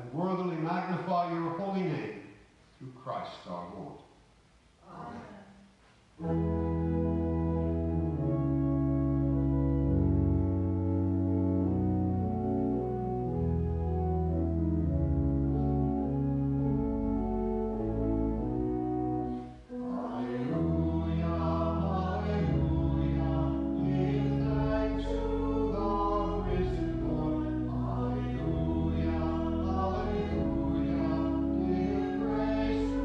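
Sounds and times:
church organ playing chords: 6.2s - 33.0s
voices singing: 19.7s - 33.0s.

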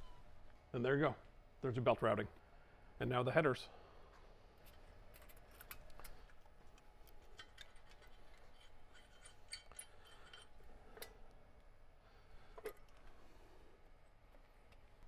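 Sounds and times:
metal tools clicking and tapping: 6.8s - 11.2s.

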